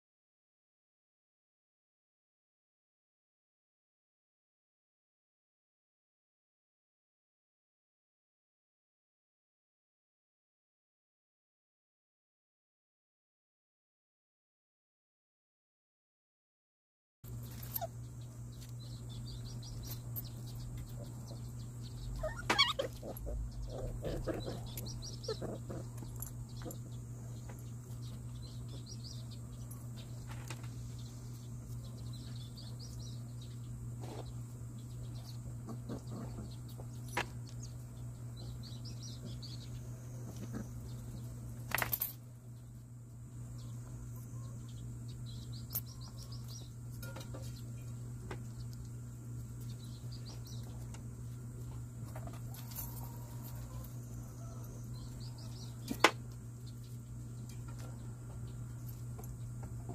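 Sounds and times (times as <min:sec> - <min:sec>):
puppies play-fighting: 0:17.3 - 0:41.7
steady low hum: 0:17.3 - 0:59.9.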